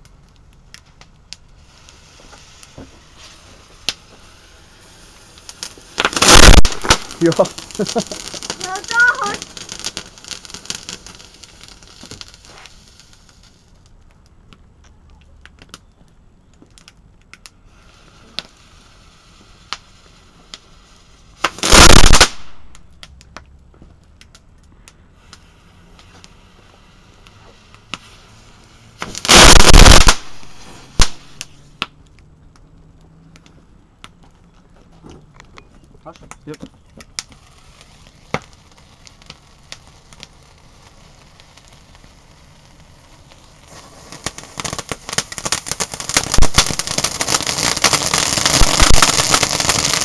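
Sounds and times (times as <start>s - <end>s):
sharp firework crack: 0.0s - 14.0s, 16.8s - 23.4s, 24.3s - 32.0s, 37.0s - 50.0s
firework crackles: 0.0s - 34.3s, 36.0s - 50.0s
loud firework blasts: 0.9s - 13.9s, 17.5s - 23.3s, 25.1s - 32.0s, 37.1s - 50.0s
firework fountain hissing: 1.4s - 13.9s, 17.6s - 22.9s, 25.1s - 31.9s, 37.3s - 50.0s.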